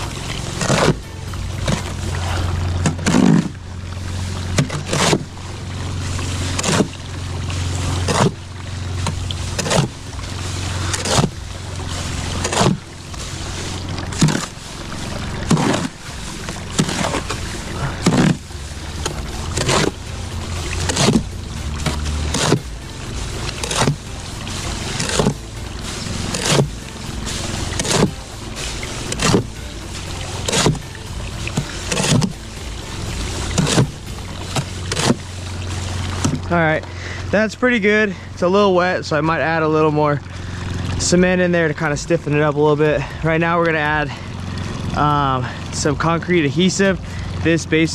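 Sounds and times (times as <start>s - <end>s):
hoe knocking wheelbarrow: 0.0s - 3.6s, 4.5s - 5.4s, 7.9s - 36.6s
hoe scraping through mortar: 0.0s - 5.4s, 6.0s - 7.0s, 7.6s - 36.4s.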